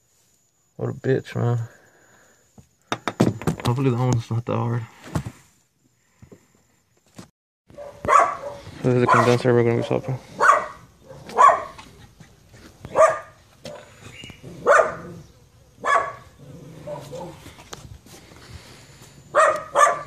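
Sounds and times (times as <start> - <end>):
dog barking: 7.7 - 11.9, 12.9 - 17.4, 19.3 - 20.0.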